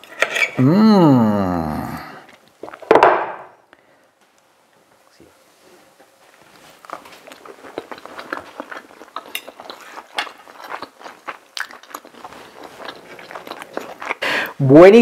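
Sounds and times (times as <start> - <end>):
man chewing crunchy food: 2.2 - 2.9, 6.4 - 14.6.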